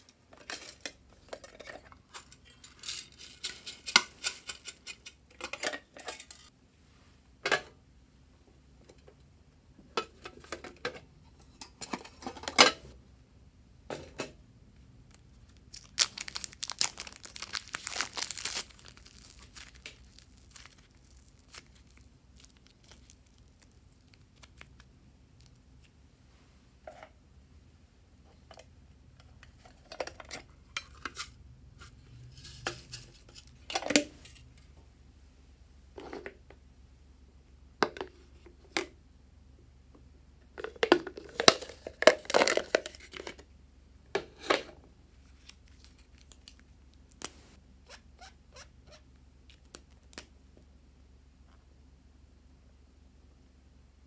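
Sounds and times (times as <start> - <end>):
crinkly tearing: 15.1 - 25.6, 45.2 - 47.4.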